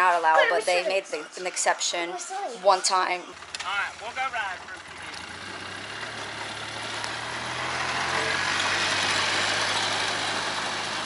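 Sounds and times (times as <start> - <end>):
tyre and road noise: 2.8 - 11.0
vehicle engine hum: 2.8 - 11.0.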